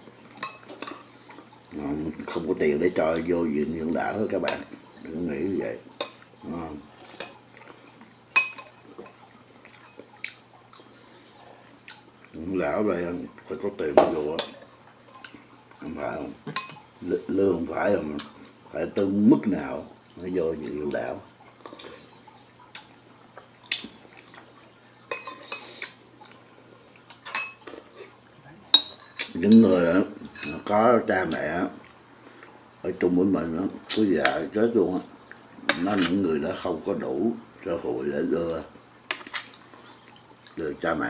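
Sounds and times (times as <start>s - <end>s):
cutlery clinking on dishes: 16.5s - 16.8s, 25.1s - 25.7s
metal spoon clinking ceramic bowls: 28.7s - 29.7s.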